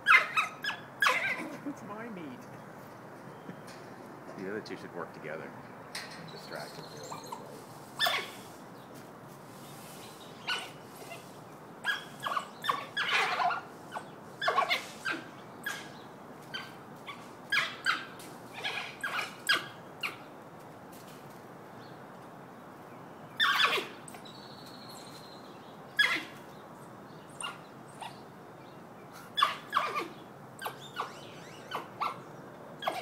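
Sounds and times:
wild dogs high-pitched calls: 0:00.0 - 0:01.7, 0:06.6 - 0:08.6, 0:10.4 - 0:20.3, 0:23.4 - 0:24.3, 0:26.0 - 0:26.5, 0:27.3 - 0:28.3, 0:29.1 - 0:33.0.

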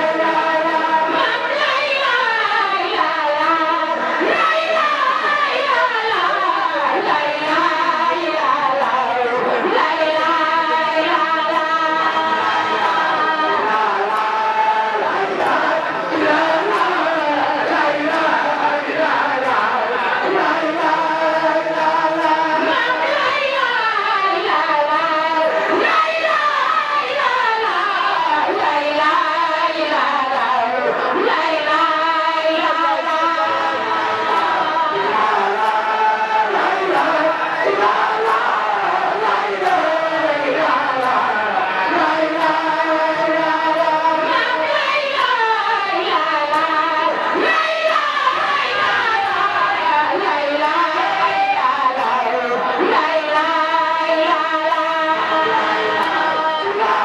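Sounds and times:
women singing a chant: 0:00.0 - 0:57.0.

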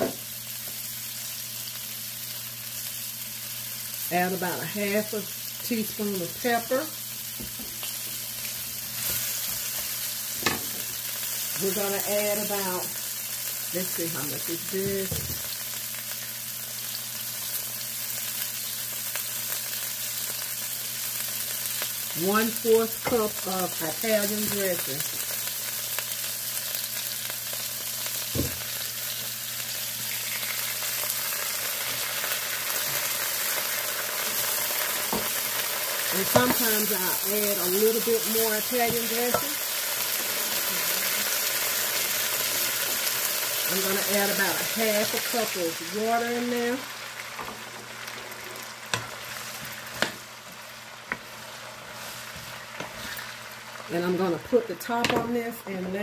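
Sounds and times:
vegetables sizzling in a pan: 0:00.0 - 0:56.0
knock: 0:28.4 - 0:28.6.

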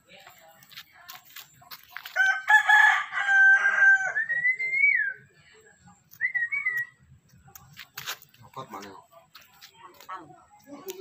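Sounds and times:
rooster crowing: 0:02.2 - 0:04.3.

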